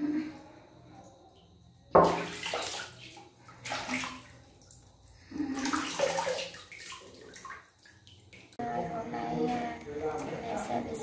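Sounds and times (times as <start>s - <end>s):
water splashing in plastic basin: 2.0s - 8.6s.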